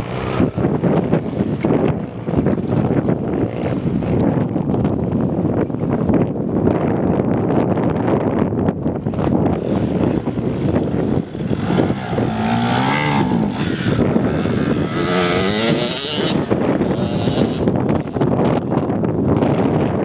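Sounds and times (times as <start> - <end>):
wind buffeting microphone: 0.0 - 20.0
small engine revving: 9.6 - 18.6.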